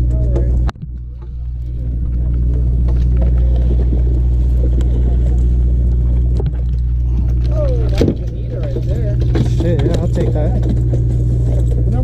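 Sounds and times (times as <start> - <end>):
boat engine droning: 0.0 - 12.0
faint voices: 6.9 - 12.0.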